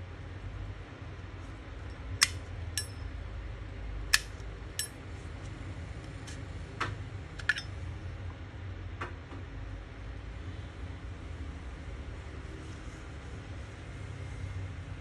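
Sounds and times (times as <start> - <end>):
low steady hum: 0.0 - 6.4, 7.1 - 8.6.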